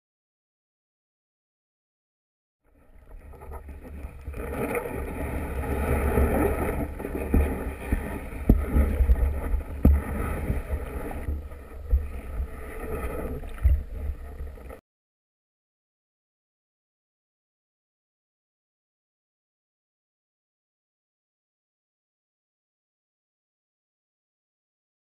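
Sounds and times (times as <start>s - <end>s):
muffled underwater rumble: 2.7s - 14.8s.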